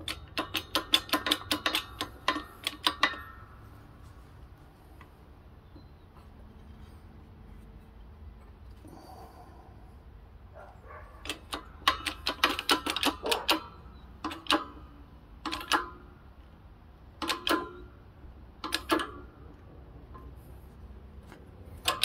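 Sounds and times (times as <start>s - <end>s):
metal-on-metal taps: 0.0s - 3.7s, 17.2s - 17.9s.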